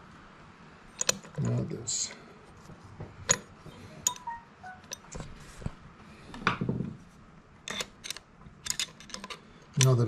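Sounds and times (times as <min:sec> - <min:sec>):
metal gears clicking and clinking: 0:07.6 - 0:10.0.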